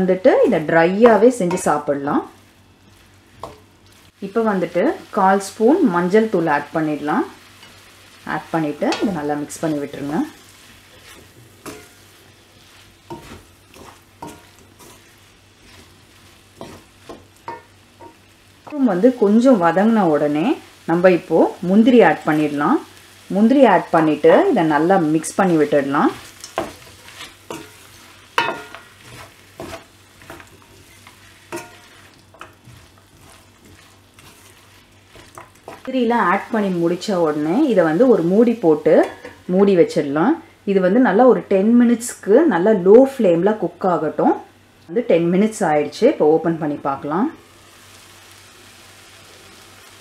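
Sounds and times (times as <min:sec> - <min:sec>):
frying sizzle: 0:00.0 - 0:40.6, 0:45.4 - 0:50.0
wooden spatula scraping a wok: 0:08.9 - 0:17.6, 0:25.2 - 0:39.4.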